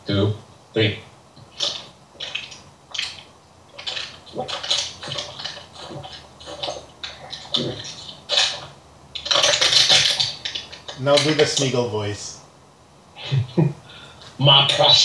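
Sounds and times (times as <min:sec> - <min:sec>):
person gulping water: 0:01.4 - 0:11.5
breathy noise: 0:13.2 - 0:14.4.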